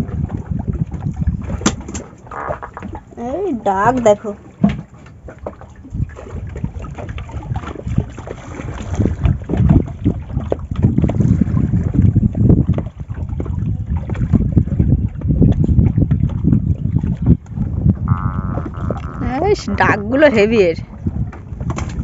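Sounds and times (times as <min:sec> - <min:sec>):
wind buffeting microphone: 0:00.0 - 0:22.0
fish croaking: 0:01.4 - 0:04.7, 0:17.7 - 0:20.8.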